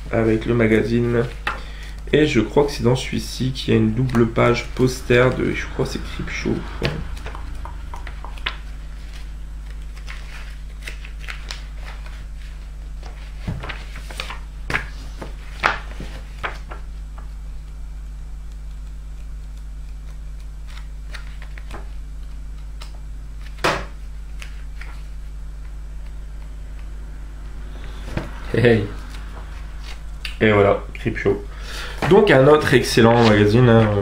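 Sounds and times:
steady low hum: 0.0 - 34.0
magazine pages rustling: 7.0 - 17.7, 23.4 - 26.7, 31.8 - 34.0.

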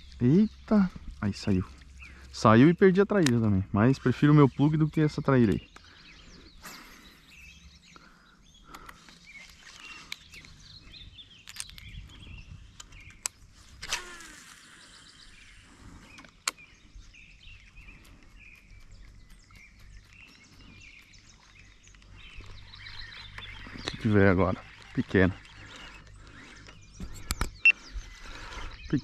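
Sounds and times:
faint birdsong: 0.0 - 29.0
sharp clicks: 1.8 - 3.9, 11.4 - 11.9, 12.7 - 14.4, 16.1 - 16.7, 23.1 - 27.8.

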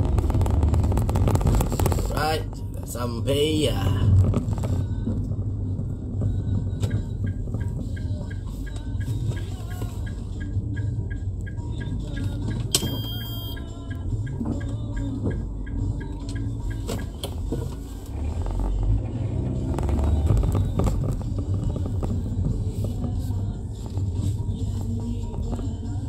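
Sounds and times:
car engine and road noise: 0.0 - 26.0
rapid light ticking: 4.2 - 17.5
short electronic beep: 11.8 - 13.8.

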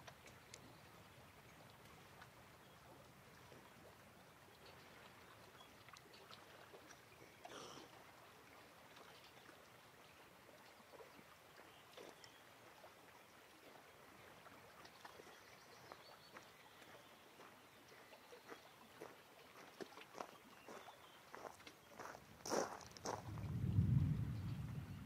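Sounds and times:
soft ticks and splashes: 0.0 - 24.5.

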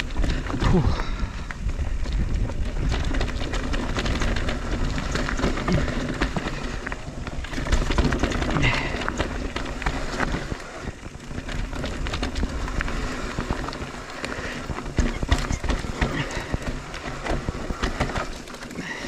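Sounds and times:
tyres running over dirt: 0.0 - 19.0
wind rumbling on microphone: 0.0 - 19.0
chain and frame rattling: 2.0 - 19.0.

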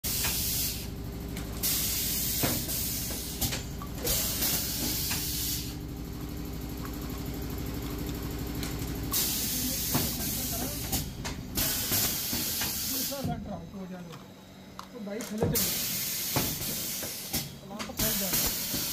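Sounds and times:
steady machine hum: 0.0 - 18.9
compressed air hissing: 0.1 - 0.9, 1.6 - 5.8, 9.1 - 13.2, 15.6 - 18.9.

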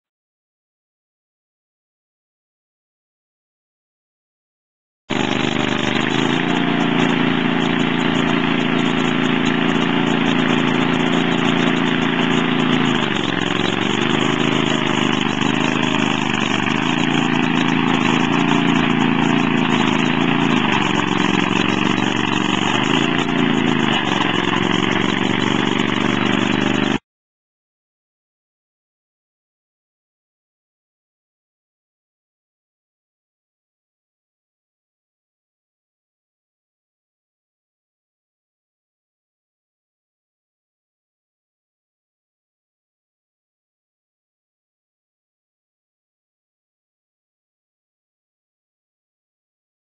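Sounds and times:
small loader engine running: 5.1 - 27.0.

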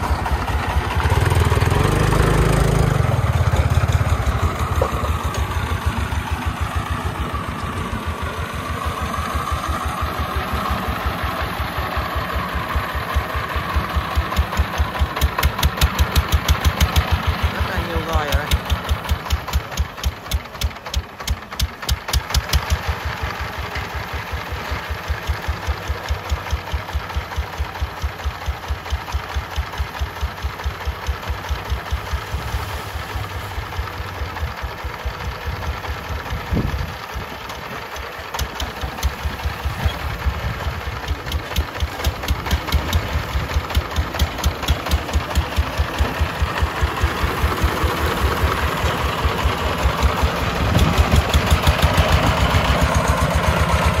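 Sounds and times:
diesel engine thumping: 0.0 - 54.0.

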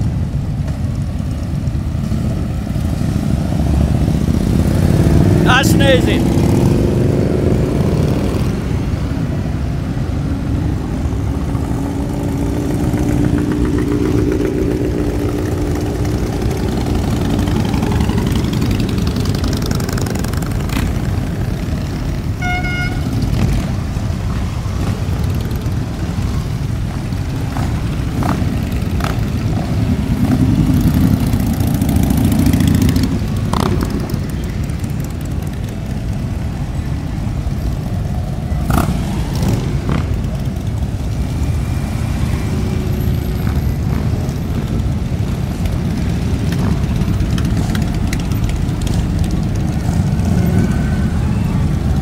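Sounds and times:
motorcycles riding past: 0.0 - 52.0
short horn beep: 22.4 - 23.2.

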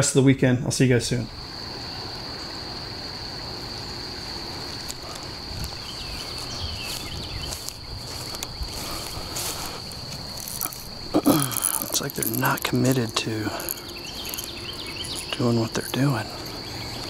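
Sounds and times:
insects trilling: 0.0 - 17.0
rustling in grass: 3.4 - 17.0.

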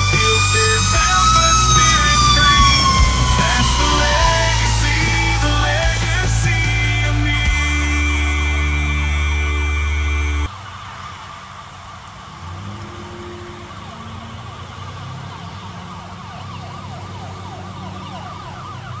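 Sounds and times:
siren yelping: 0.0 - 7.6, 13.2 - 19.0.

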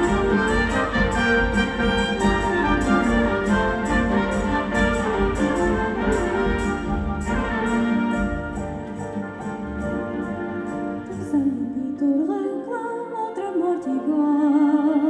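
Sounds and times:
ticking percussion beat: 0.0 - 10.8
trumpets: 0.0 - 11.6
orchestral ensemble playing: 0.0 - 12.0.

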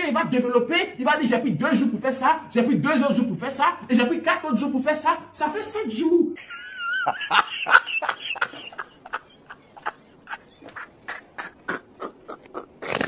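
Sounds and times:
man laughing breathily: 7.0 - 13.0.

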